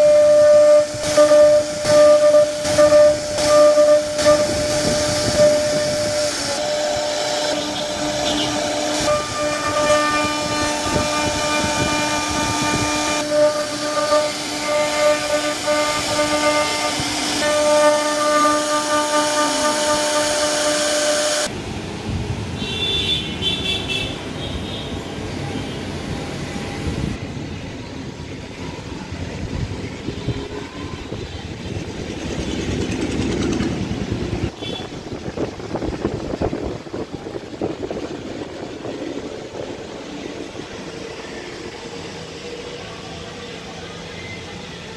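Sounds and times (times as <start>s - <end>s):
cnc router spindle whine: 0.0s - 21.5s
low rough machine noise: 0.0s - 21.5s.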